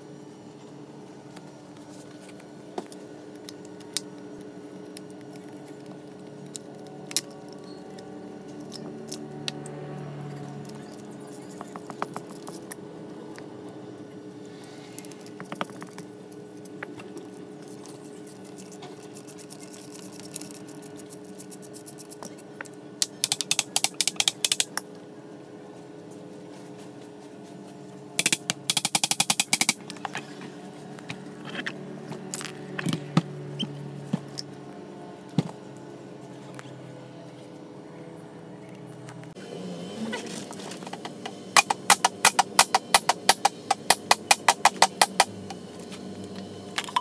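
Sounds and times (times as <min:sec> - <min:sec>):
ratchet wrench clicking: 0:23.0 - 0:24.8, 0:28.2 - 0:29.8.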